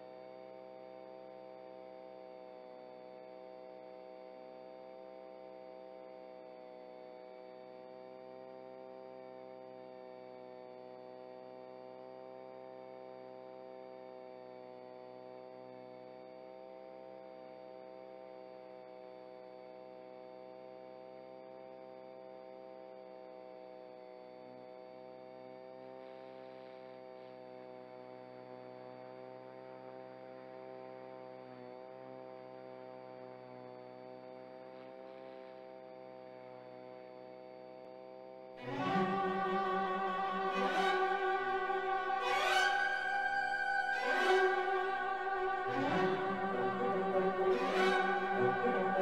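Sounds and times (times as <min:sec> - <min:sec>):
music: 0:38.6 - 0:49.0.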